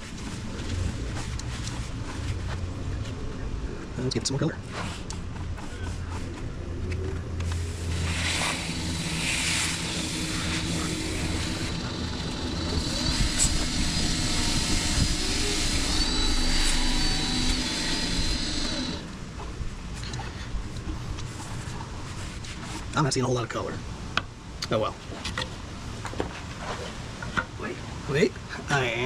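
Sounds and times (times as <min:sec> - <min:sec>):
cloth rubbing on spinning wood: 0:07.2 - 0:19.1
lathe motor hum: 0:07.4 - 0:19.1.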